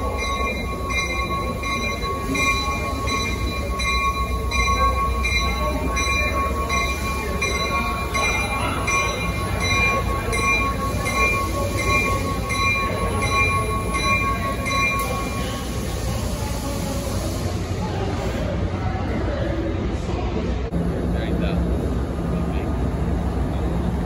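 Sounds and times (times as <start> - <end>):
train bell ringing: 0.0 - 17.4
train rumble: 0.0 - 24.0.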